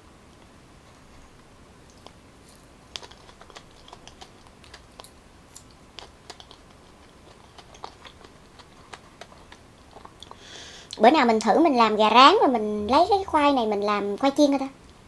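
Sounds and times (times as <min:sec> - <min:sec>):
close chewing with mouth clicks: 0:01.8 - 0:11.0.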